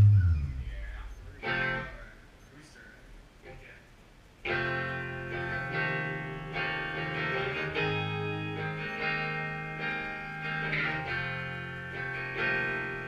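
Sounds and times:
bass guitar notes: 0.0 - 2.0
electric guitar chords: 0.0 - 2.0, 4.5 - 13.0.

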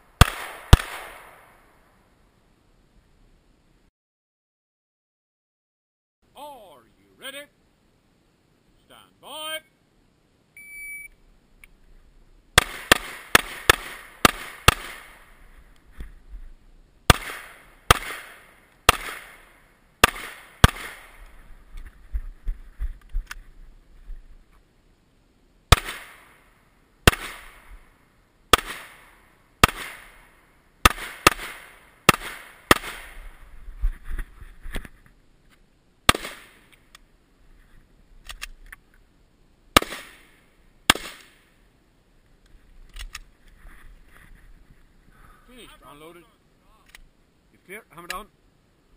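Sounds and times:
pistol shots with echo: 0.2 - 1.6, 12.6 - 15.3, 17.1 - 21.2, 25.7 - 26.3, 27.1 - 27.7, 28.5 - 30.2, 30.8 - 33.2, 39.8 - 40.3
shot timer beep: 10.6 - 11.2.

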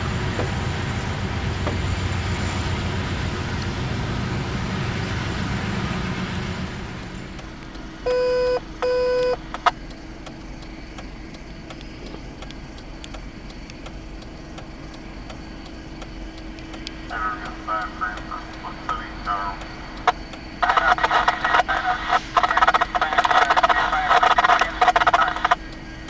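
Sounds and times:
loud passing rumble: 0.0 - 8.1
faint steady hum: 0.0 - 26.0
short single-pitch beeps: 8.1 - 9.4.

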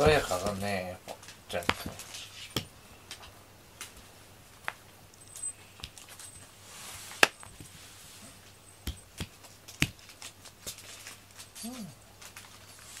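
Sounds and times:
soft brushing: 1.8 - 2.7, 6.2 - 8.8
toy tapping on foam mat: 8.8 - 10.0.

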